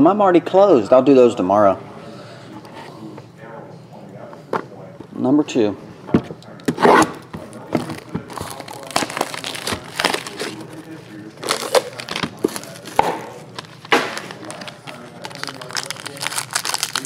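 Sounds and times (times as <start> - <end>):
plastic wrap crinkling and tearing: 7.4 - 17.0.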